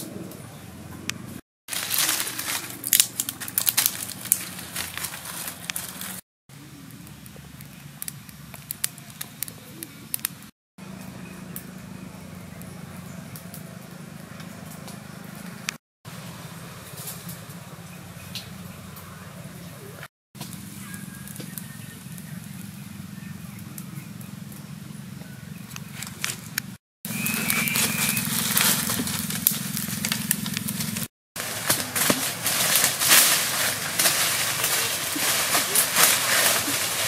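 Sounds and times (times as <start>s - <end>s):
dry twigs snapping: 1.7s - 6.2s, 7.0s - 11.7s, 25.7s - 37.0s
small fire crackling: 1.7s - 15.8s, 20.4s - 24.8s, 25.7s - 37.0s.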